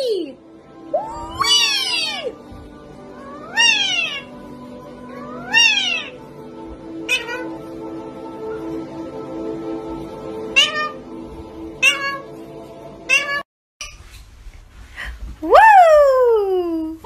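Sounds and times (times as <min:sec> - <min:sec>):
background music: 0:00.0 - 0:13.4
parrot calling: 0:00.9 - 0:02.4, 0:03.2 - 0:04.4, 0:05.1 - 0:06.2, 0:07.0 - 0:07.6, 0:10.5 - 0:11.1, 0:11.8 - 0:12.3.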